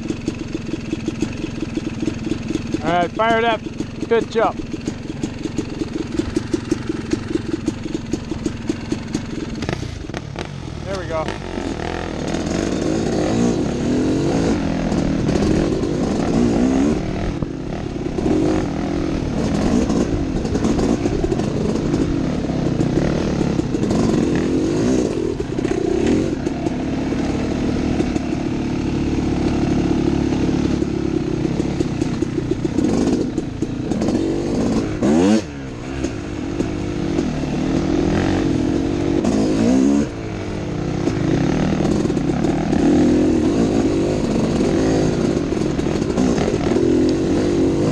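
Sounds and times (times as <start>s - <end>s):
dirt bike engine revving: 0.0s - 47.9s.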